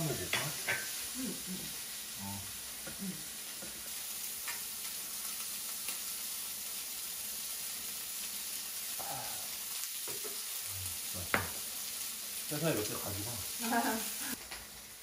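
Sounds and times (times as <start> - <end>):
food sizzling in a pan: 0.0 - 15.0.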